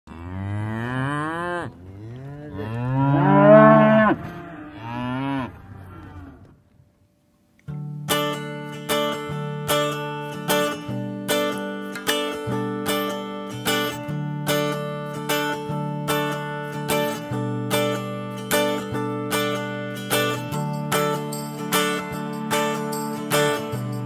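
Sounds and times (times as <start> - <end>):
cow mooing: 0.1 - 6.6
acoustic guitar strumming: 7.7 - 24.0.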